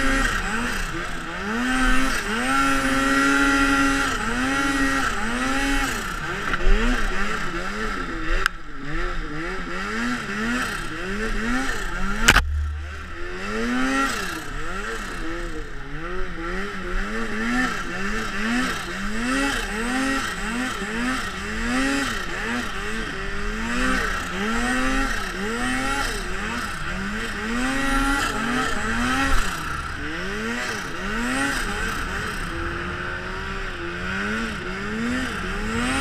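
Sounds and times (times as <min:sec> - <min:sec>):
snowmobile engine revving: 0:00.0 - 0:36.0
brief thump: 0:12.2 - 0:13.2
steady rushing noise: 0:12.2 - 0:15.4.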